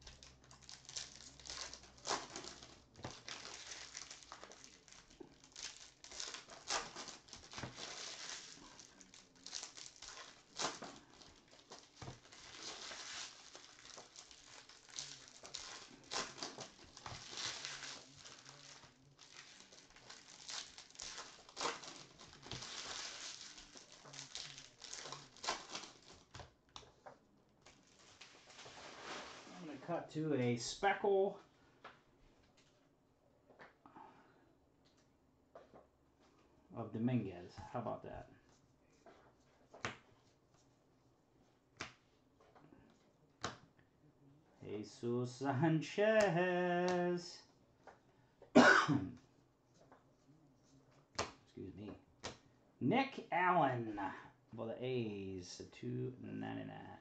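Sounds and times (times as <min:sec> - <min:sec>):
foil wrapper crinkling: 0:00.0 - 0:26.9, 0:27.6 - 0:29.8.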